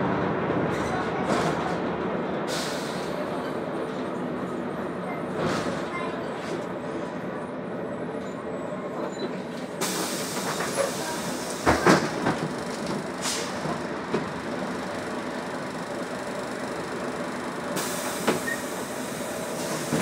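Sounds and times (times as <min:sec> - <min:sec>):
bus engine running: 0:00.0 - 0:20.0
air hiss of bus doors opening: 0:02.5 - 0:03.2, 0:09.8 - 0:12.2, 0:13.2 - 0:13.7, 0:17.7 - 0:20.0.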